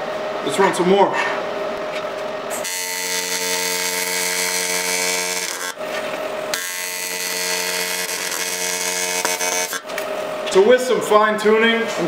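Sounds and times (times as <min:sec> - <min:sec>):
welding arc buzzing: 0:02.5 - 0:10.1.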